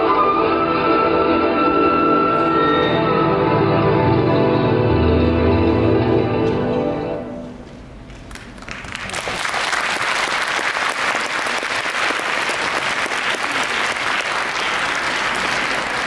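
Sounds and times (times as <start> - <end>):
audience applauding: 8.3 - 16.0.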